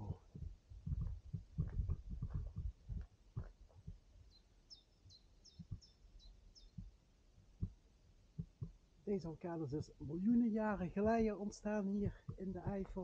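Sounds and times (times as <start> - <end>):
dull low footstep thuds: 0.0 - 4.1, 5.1 - 5.9, 6.7 - 7.8, 8.4 - 8.8, 11.0 - 13.0
bird chirping: 4.1 - 7.0.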